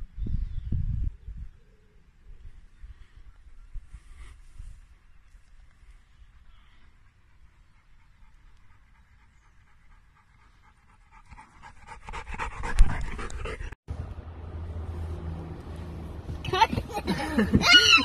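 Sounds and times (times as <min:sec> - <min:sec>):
dog panting: 0:06.3 - 0:13.8.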